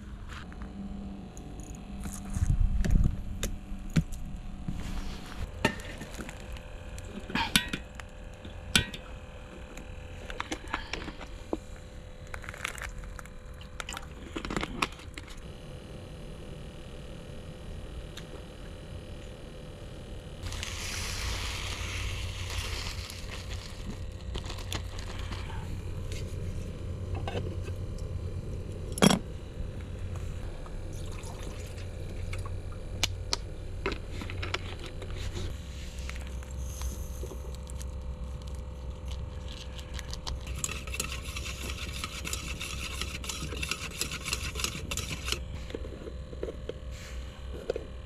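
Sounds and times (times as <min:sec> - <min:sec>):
gas stove hiss: 0:20.4 - 0:23.9.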